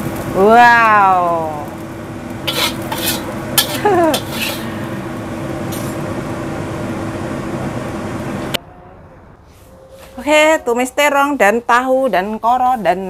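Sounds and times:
steady hum: 0:00.0 - 0:11.6
metal spatula scraping ceramic plate: 0:02.4 - 0:04.8.

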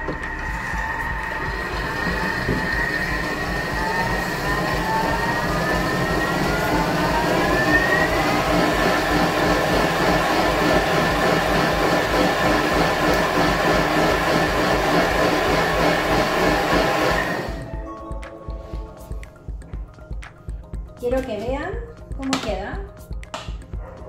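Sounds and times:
food chopping churning noise: 0:00.0 - 0:17.6
food processor motor whine: 0:00.0 - 0:17.7.

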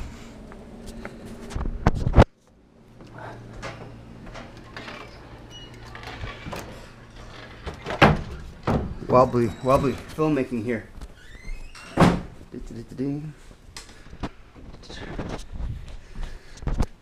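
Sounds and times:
door opening: 0:03.5 - 0:12.4
footsteps: 0:13.4 - 0:17.0.

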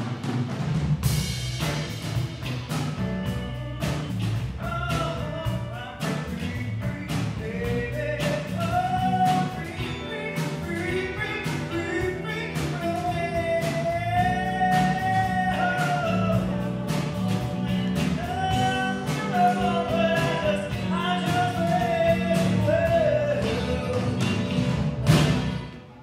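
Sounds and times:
blues band playing: 0:00.0 - 0:26.0
harmonica: 0:07.6 - 0:25.7.

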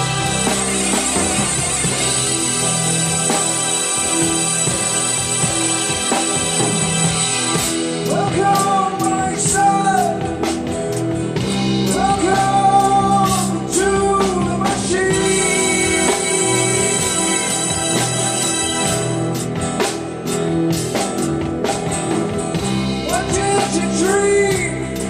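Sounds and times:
live rock band playing: 0:00.0 - 0:25.0
man singing lead vocal: 0:08.0 - 0:10.4, 0:11.9 - 0:17.9, 0:23.0 - 0:25.0.

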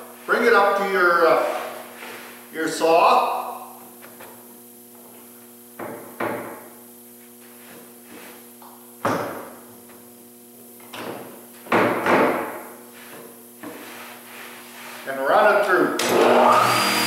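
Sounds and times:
steady low hum: 0:00.0 - 0:16.6
sharp wooden knocks and thumps: 0:05.8 - 0:06.6, 0:09.0 - 0:09.5, 0:10.9 - 0:12.6.

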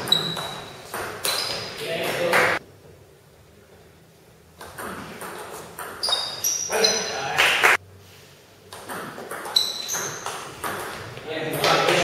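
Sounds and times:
table tennis ball hits: 0:08.7 - 0:12.0.

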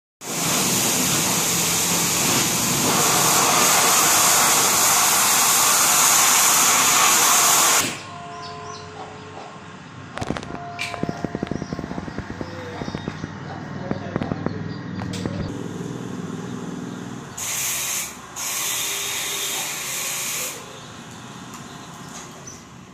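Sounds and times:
loud steady hissing: 0:00.2 - 0:08.1, 0:15.5 - 0:21.0.

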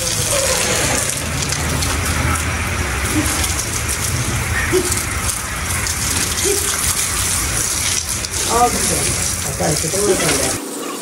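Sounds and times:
hose water spraying on concrete: 0:00.0 - 0:11.0.

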